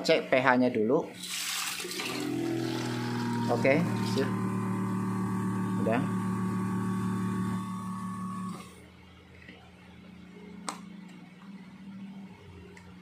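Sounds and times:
water pump humming: 0:01.2 - 0:08.8.

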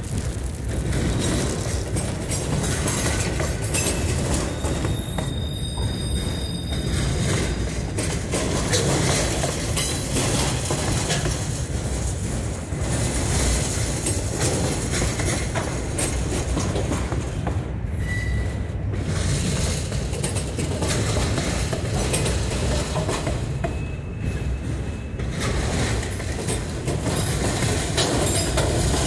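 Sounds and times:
train wheels rumbling on rails: 0:00.0 - 0:29.0
high wheel squeal: 0:03.9 - 0:07.6, 0:17.9 - 0:18.7.

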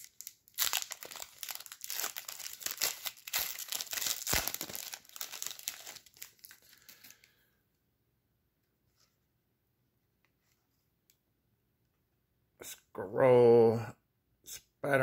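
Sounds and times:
wrapper crinkling and tearing: 0:00.0 - 0:07.2.

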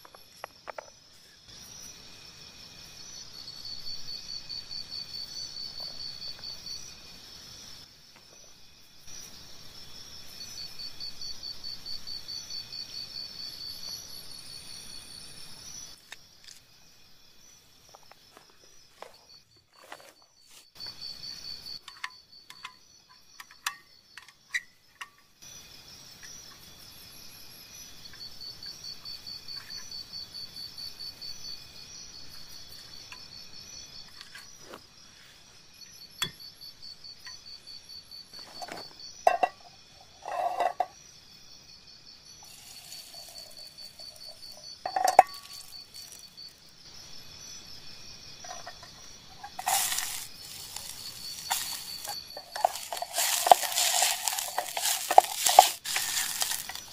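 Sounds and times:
insects trilling: 0:00.0 - 0:56.9
metal pot and stove clinking: 0:39.2 - 0:40.9, 0:42.5 - 0:46.2.

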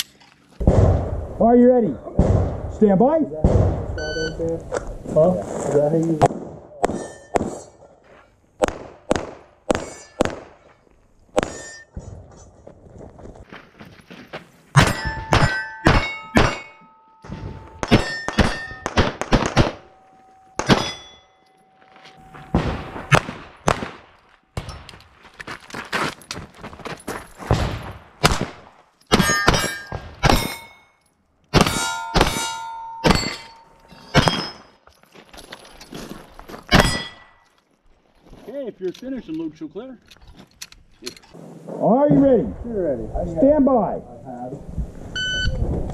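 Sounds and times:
pistol shots: 0:08.6 - 0:10.6, 0:17.8 - 0:20.0, 0:20.6 - 0:21.0, 0:22.5 - 0:24.2, 0:27.5 - 0:30.6
steel plate ringing: 0:14.8 - 0:23.2, 0:29.1 - 0:34.8, 0:36.7 - 0:37.4.

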